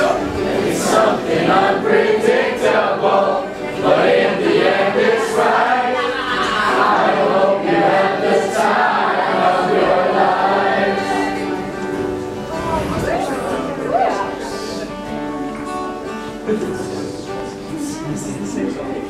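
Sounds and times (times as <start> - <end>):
choir singing held notes: 0.0 - 15.0
background music: 0.0 - 19.0.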